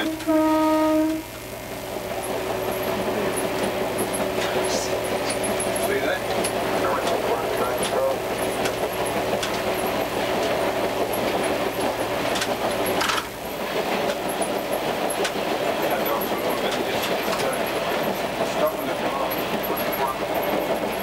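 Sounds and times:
low steady hum: 0:00.0 - 0:08.6
railcar running noise: 0:00.0 - 0:21.0
wheels clicking over rails: 0:02.3 - 0:21.0.

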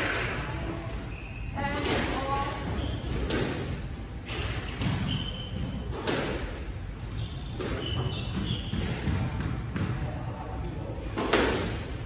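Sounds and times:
low hum of hall: 0:00.0 - 0:12.0
sneakers squeaking on wooden floor: 0:00.9 - 0:01.8, 0:02.4 - 0:03.7, 0:04.3 - 0:10.1.

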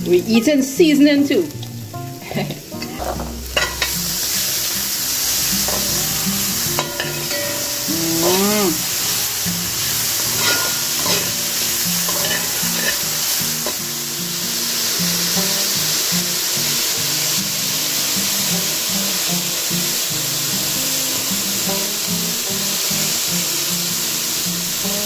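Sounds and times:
food sizzling in a pot: 0:00.0 - 0:25.0
spoon stirring and scraping: 0:10.4 - 0:11.4, 0:12.1 - 0:13.8.

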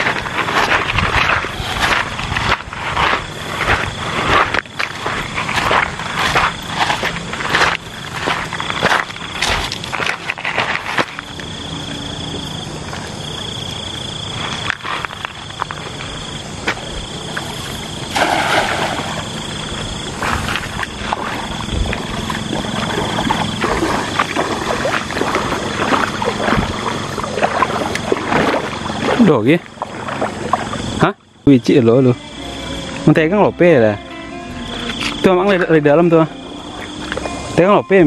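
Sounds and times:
person wading in water: 0:17.1 - 0:31.0
cast net splashing into water: 0:17.4 - 0:31.0.

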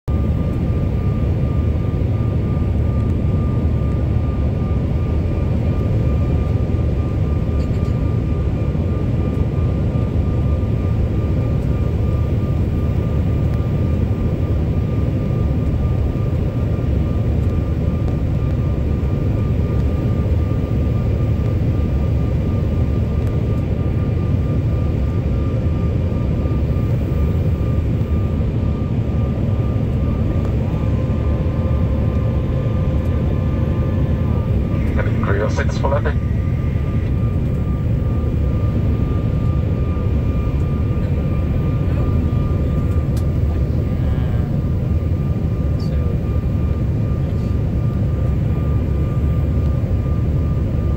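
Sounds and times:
airliner cabin engine rush: 0:00.1 - 0:50.9
faint high whine: 0:11.2 - 0:44.5.

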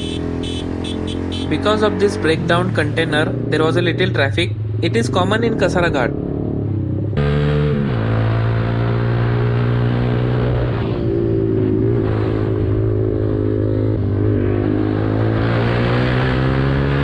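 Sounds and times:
motorcycle engine running: 0:00.0 - 0:03.7.

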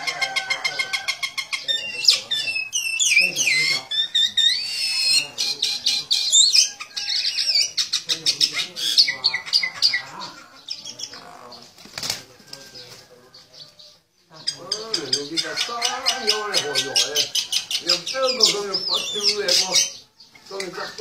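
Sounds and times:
myna whistles and chatter: 0:00.0 - 0:21.0
wings fluttering: 0:11.6 - 0:13.1.

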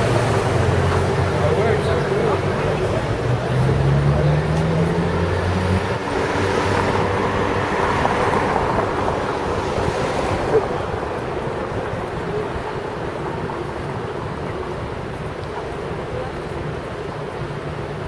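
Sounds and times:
street traffic: 0:00.0 - 0:18.0
wind rushing over microphone: 0:05.8 - 0:15.2.

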